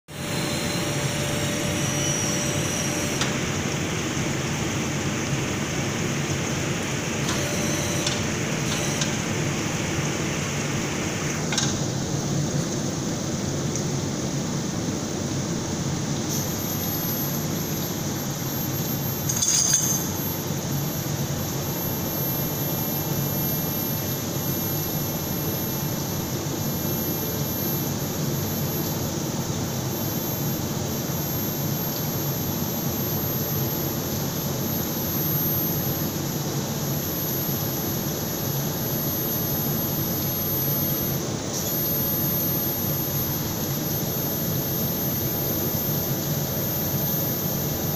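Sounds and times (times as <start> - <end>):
high-pitched whine: 0.1 - 47.9
metallic clink: 19.2 - 20.2.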